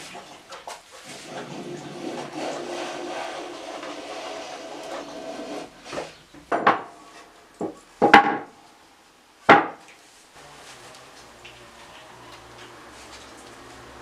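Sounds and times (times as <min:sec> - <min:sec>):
hand plane shaving wood: 0:01.1 - 0:06.2
sharp wooden knocks: 0:06.4 - 0:07.0, 0:07.6 - 0:08.6, 0:09.5 - 0:09.8.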